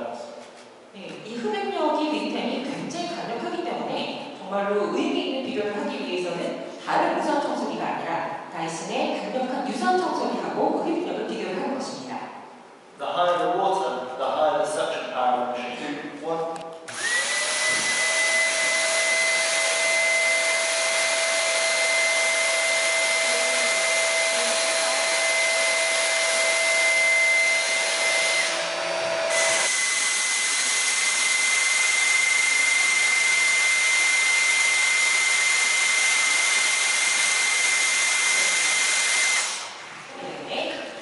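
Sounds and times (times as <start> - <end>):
vacuum cleaners whining: 16.9 - 39.8.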